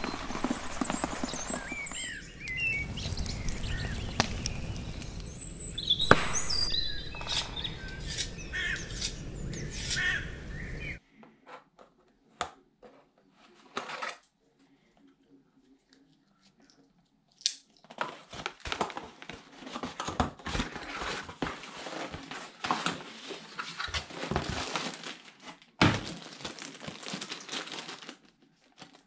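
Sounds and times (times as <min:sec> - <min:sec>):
plastic package rustling: 0:00.0 - 0:05.5, 0:17.8 - 0:29.0
birds chirping: 0:00.0 - 0:11.0.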